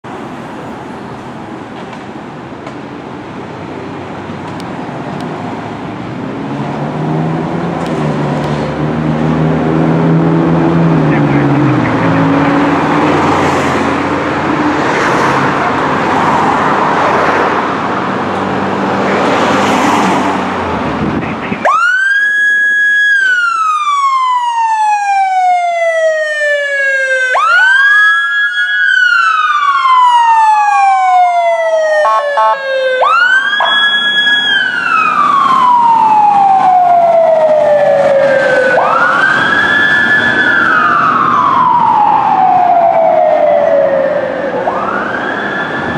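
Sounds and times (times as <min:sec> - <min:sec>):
fire engine siren wailing: 0:07.0 - 0:18.3, 0:21.2 - 0:45.9
diesel engine running loudly: 0:07.5 - 0:13.2.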